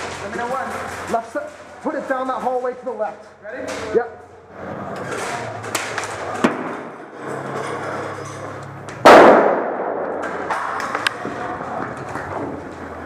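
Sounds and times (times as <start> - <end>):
grenade bang: 6.4 - 7.0, 9.0 - 10.8.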